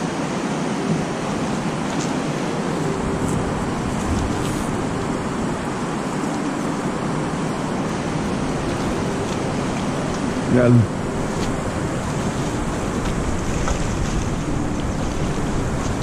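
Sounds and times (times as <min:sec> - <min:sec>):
creek water rushing: 0:00.0 - 0:16.0.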